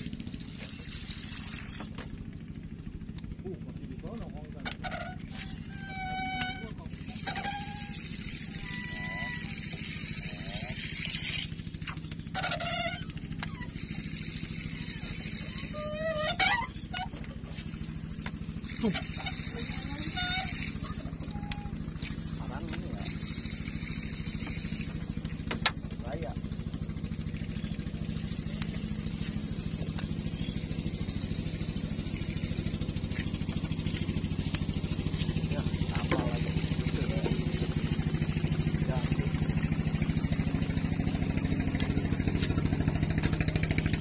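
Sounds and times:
small boat engine running: 0.0s - 44.0s
short pitched calls: 4.9s - 22.4s.

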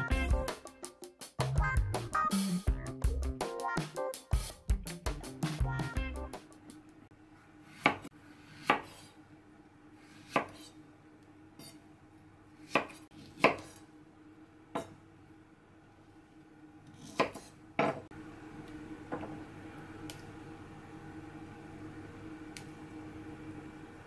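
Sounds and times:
knife chopping on cutting board: 7.7s - 9.1s, 10.0s - 10.8s, 12.6s - 13.8s, 16.9s - 18.1s.

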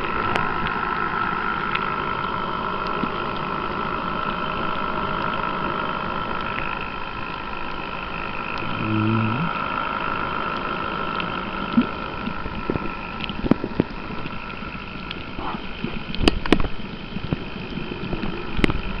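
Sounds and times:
high underwater whine: 0.0s - 19.0s
sharp underwater clicks and knocks: 15.0s - 17.5s.

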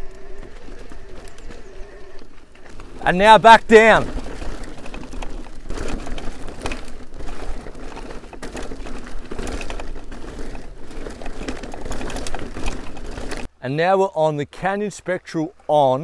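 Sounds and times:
bike rattling over bumps: 0.0s - 13.5s
tyres rolling on dirt: 0.0s - 16.0s.

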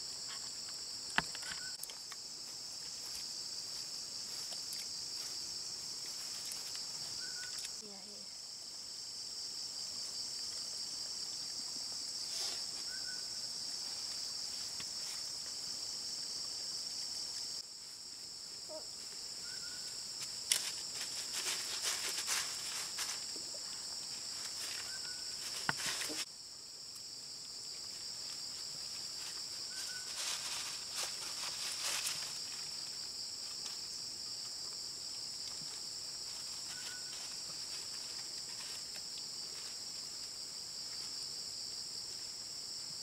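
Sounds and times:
insects chirring: 0.0s - 43.0s
rustles and clicks in grass: 0.2s - 7.9s, 13.8s - 15.7s, 17.3s - 26.3s, 27.4s - 41.3s.

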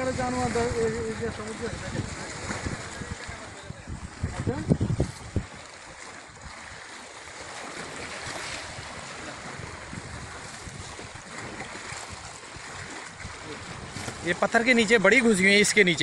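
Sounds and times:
wind rumbling on microphone: 0.0s - 16.0s
river water flowing over stones: 4.2s - 16.0s.

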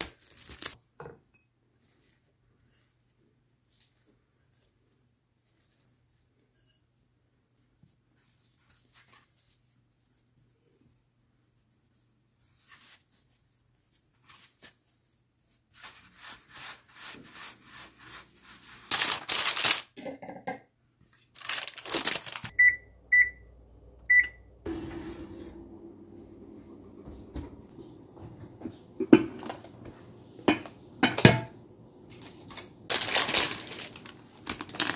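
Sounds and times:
hands kneading dough: 1.7s - 19.7s
oven control panel beeps: 22.5s - 24.5s
oven humming: 22.5s - 34.9s.

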